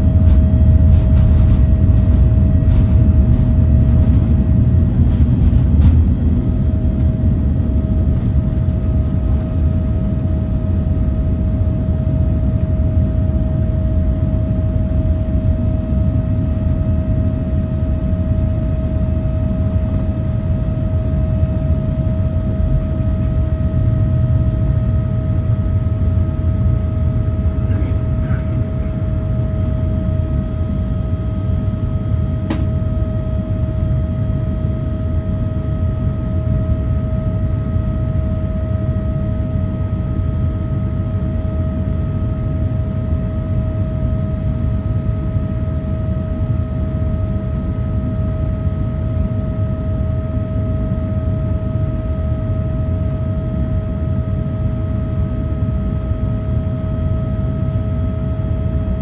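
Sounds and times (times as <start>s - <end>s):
jet engines rumbling: 0.0s - 59.0s
mid-pitched whine: 0.0s - 59.0s.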